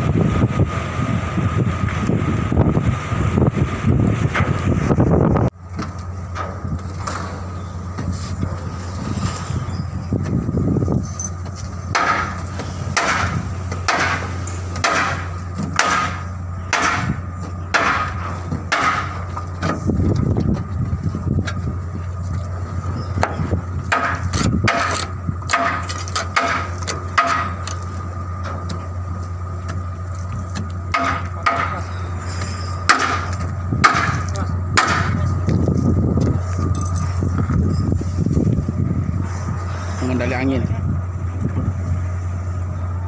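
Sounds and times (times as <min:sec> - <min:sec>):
low machinery hum: 0:00.0 - 0:43.0.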